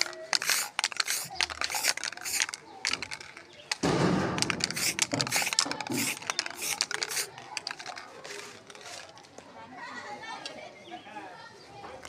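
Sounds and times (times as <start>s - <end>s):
spray can clicks and rattles: 0.0s - 9.2s.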